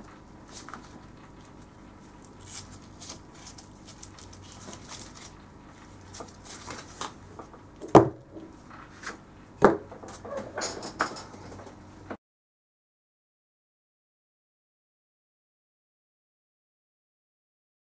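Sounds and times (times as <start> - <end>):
leather rustling and scraping: 0.5 - 7.2.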